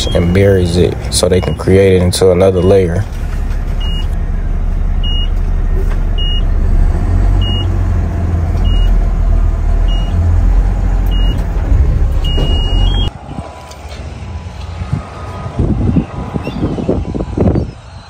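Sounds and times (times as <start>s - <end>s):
backup alarm beeping: 0.0s - 3.0s, 3.8s - 4.2s, 5.0s - 5.4s, 6.1s - 6.6s, 7.4s - 7.7s, 8.6s - 9.0s, 9.8s - 10.2s, 11.1s - 13.1s
diesel engine rumbling: 0.0s - 18.0s.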